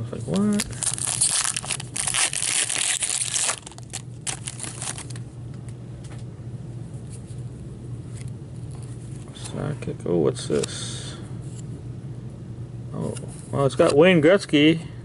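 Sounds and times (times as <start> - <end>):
foil wrapper crinkling: 0.3 - 5.2.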